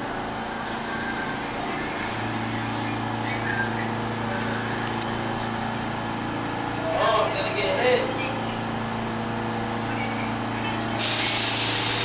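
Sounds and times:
subway train equipment humming: 0:00.0 - 0:12.0.

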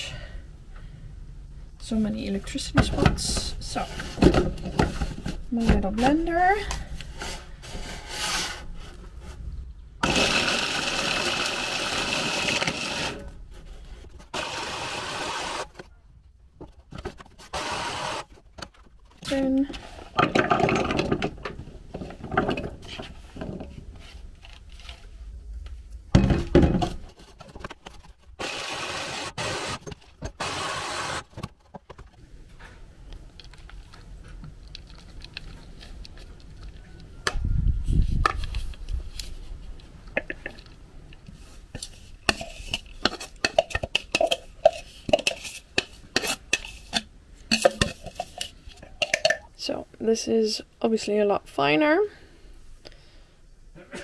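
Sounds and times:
electric chopper grinding: 0:10.0 - 0:13.2, 0:14.3 - 0:15.6.

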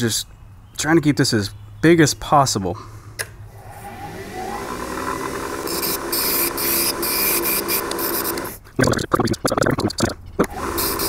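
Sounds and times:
wood lathe motor hum: 0:03.5 - 0:08.6, 0:10.5 - 0:11.0
gouge cutting spinning wood: 0:03.6 - 0:08.6, 0:10.5 - 0:11.0.

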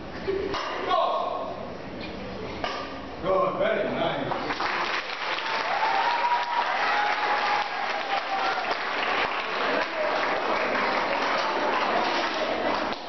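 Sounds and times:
children applauding: 0:04.5 - 0:13.0.

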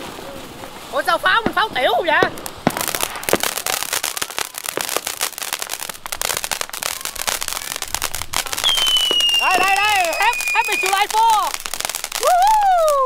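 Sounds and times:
firework sparks crackling: 0:00.0 - 0:13.0
high descending whistle: 0:08.6 - 0:11.1.

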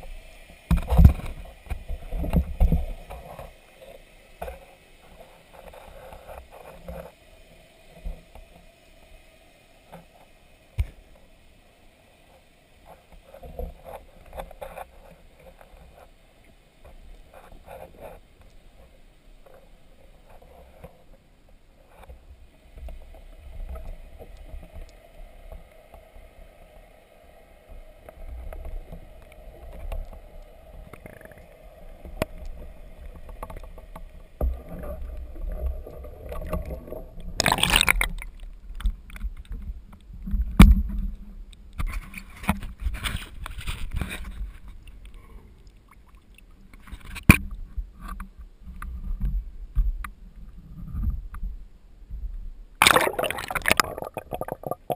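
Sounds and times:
faint underwater hum: 0:00.0 - 0:54.9
water sloshing against camera: 0:32.3 - 0:41.1, 0:52.8 - 0:54.9
loud water splash: 0:52.8 - 0:54.9.

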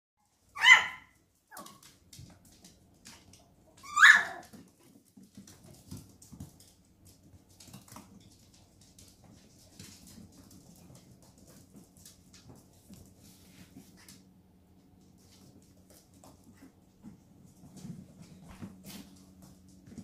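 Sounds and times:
dog yipping: 0:00.5 - 0:01.8, 0:03.8 - 0:04.5.

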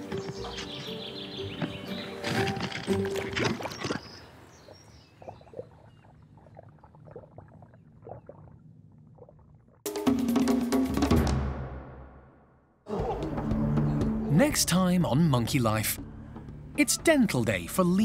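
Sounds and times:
background music: 0:00.0 - 0:03.7, 0:09.9 - 0:18.0.

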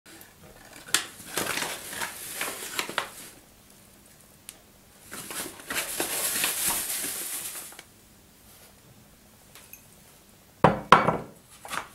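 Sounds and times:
plastic bag rustling: 0:00.1 - 0:03.4, 0:04.9 - 0:07.9.

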